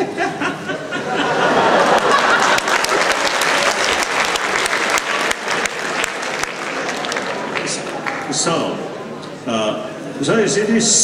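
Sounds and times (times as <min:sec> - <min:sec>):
audience applause: 0:01.2 - 0:08.6.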